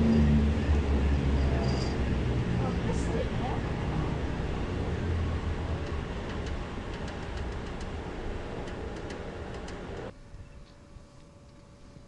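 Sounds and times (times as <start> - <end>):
cable machinery rumble: 0.0 - 10.2
light clicks: 5.8 - 10.1.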